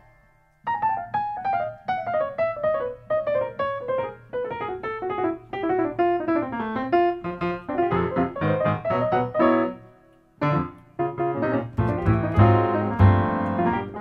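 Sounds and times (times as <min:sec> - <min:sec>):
piano descending run: 0:04.4 - 0:14.0.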